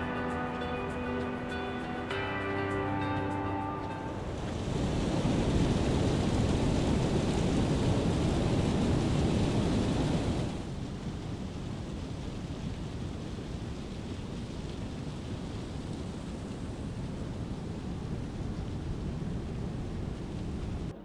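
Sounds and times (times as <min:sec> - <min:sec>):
waterfall rushing: 0:00.0 - 0:10.6
ocean surf: 0:00.0 - 0:11.2.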